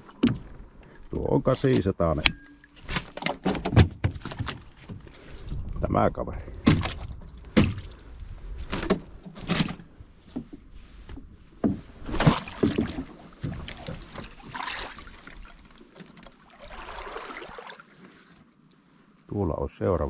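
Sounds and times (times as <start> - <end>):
knocks in a boat: 6.6 - 7.9, 11.2 - 14.2
water splashing: 12.0 - 18.4.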